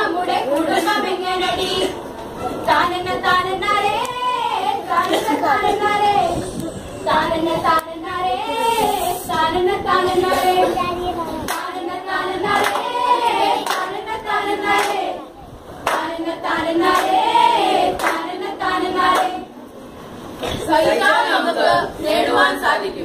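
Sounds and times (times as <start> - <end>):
young voices singing: 0.0 - 19.6, 20.4 - 23.0
hand claps: 11.5 - 11.7, 12.6 - 13.0, 13.6 - 14.0, 14.7 - 15.0, 15.8 - 16.2, 16.9 - 17.2, 18.0 - 18.3.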